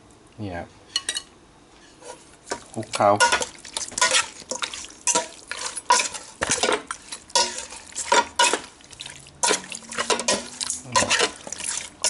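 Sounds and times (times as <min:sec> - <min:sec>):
metal spoon scraping metal pot: 0:03.2 - 0:08.7, 0:09.4 - 0:12.0.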